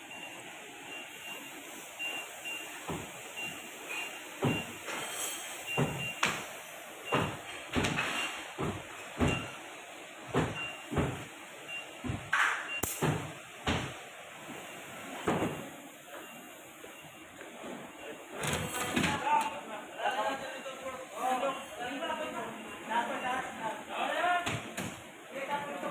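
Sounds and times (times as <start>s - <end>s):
forklift knocks and clunks: 2.8s - 3.2s, 4.4s - 4.9s, 5.7s - 6.5s, 7.1s - 9.6s, 10.2s - 11.3s, 12.0s - 14.0s, 15.2s - 15.7s.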